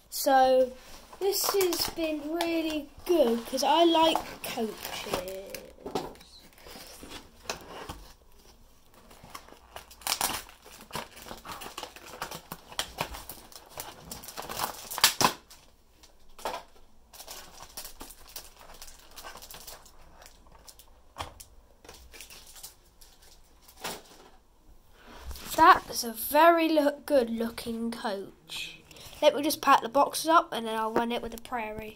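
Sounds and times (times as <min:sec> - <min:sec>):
plastic packaging crinkling: 0:00.5 - 0:24.3.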